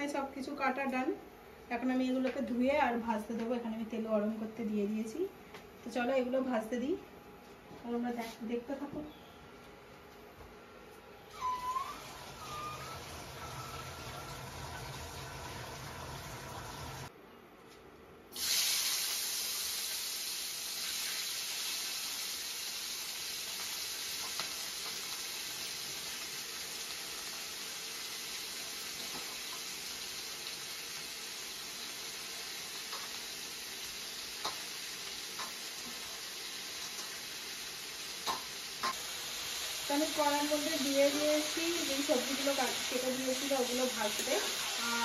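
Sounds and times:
vegetables sizzling in hot oil: 11.4 - 17.1, 18.4 - 45.0.

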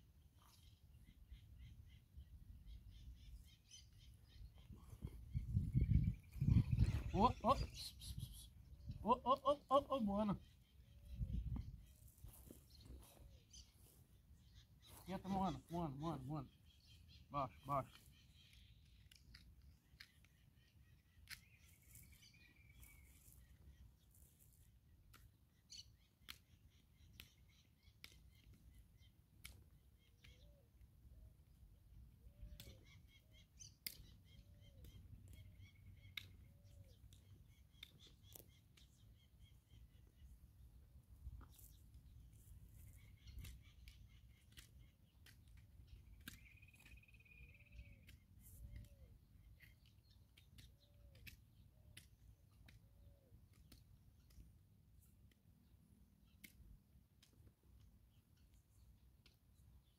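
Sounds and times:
drawn-out bird call: 0.4 - 13.8
faint scattered clicks: 34.8 - 39.2, 41.2 - 55.6
hand tools trimming hoof: 41.2 - 52.8.

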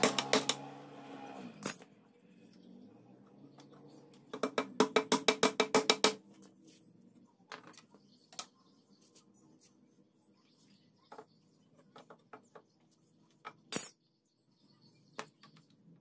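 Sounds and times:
hammer tapping a nail into wood: 4.4 - 6.2.

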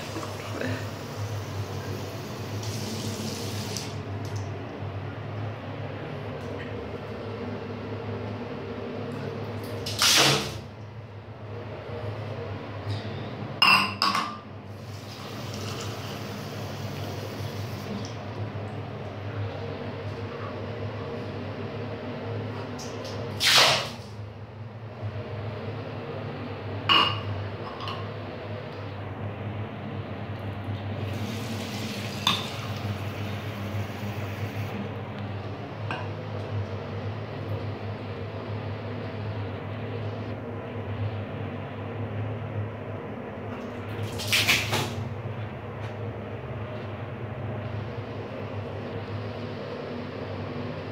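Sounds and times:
exhaust fan humming: 0.0 - 23.4, 24.0 - 50.9
mug clinking on washbasin: 13.6 - 14.4, 26.9 - 28.0
tap water running into mug: 31.1 - 33.5.

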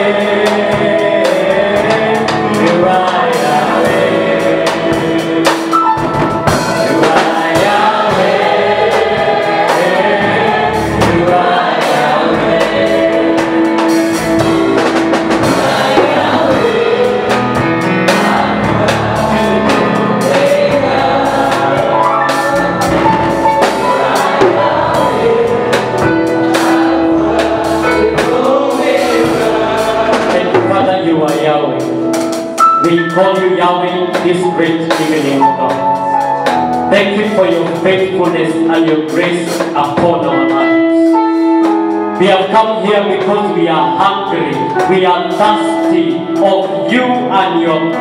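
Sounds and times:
voices singing together: 0.0 - 31.9
drums: 0.0 - 48.0.

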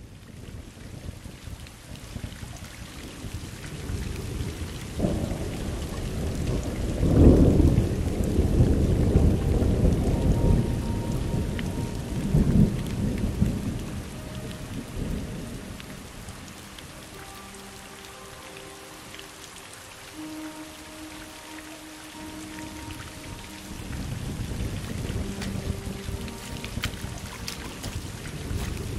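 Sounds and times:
steady rain: 0.0 - 28.9
rolling thunder: 0.5 - 16.2.

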